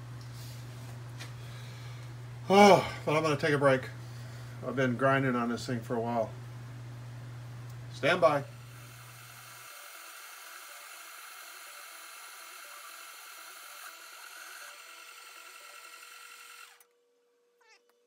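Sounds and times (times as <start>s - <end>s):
metal lathe motor humming: 8.0s - 16.9s.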